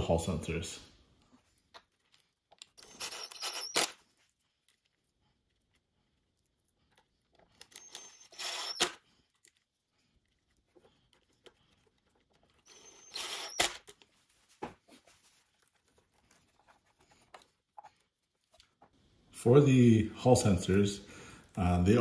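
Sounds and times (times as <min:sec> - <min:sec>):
wires scraping and rustling: 0:13.8 - 0:19.0.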